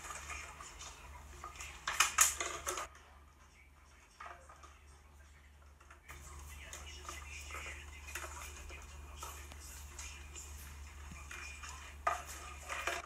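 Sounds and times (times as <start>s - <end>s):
hard objects clattering together: 0.0s - 3.0s, 5.6s - 13.0s.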